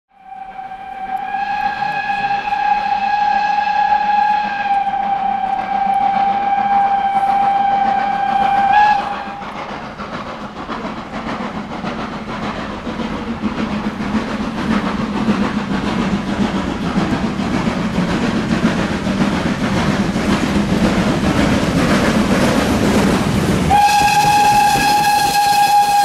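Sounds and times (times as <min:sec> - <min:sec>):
steam locomotive whistle: 0:00.1 - 0:09.6, 0:23.6 - 0:26.0
train rumble and wheel clatter: 0:00.2 - 0:26.0.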